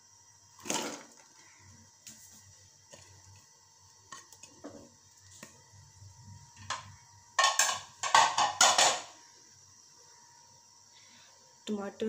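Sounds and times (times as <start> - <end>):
plate and utensils clattering on metal: 7.4 - 9.1.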